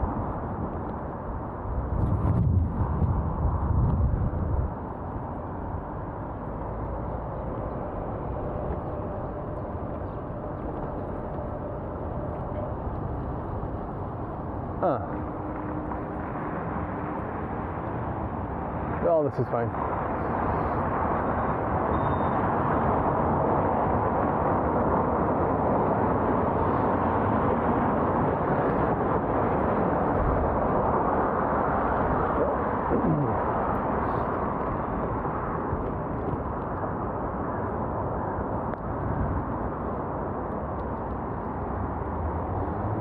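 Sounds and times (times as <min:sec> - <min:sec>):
wind and road noise: 0:00.0 - 0:43.0.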